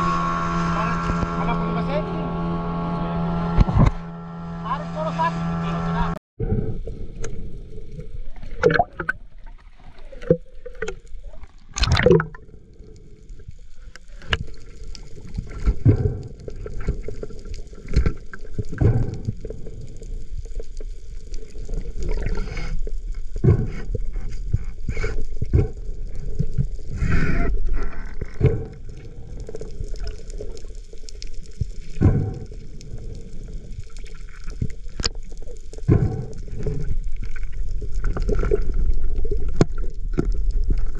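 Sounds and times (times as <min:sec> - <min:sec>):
muffled underwater gurgling: 0:00.0 - 0:04.0, 0:04.6 - 0:40.9
knocks underwater: 0:08.6 - 0:09.3, 0:11.8 - 0:12.4, 0:15.6 - 0:17.1, 0:17.9 - 0:19.4, 0:23.4 - 0:24.6, 0:31.9 - 0:32.5, 0:35.8 - 0:36.9.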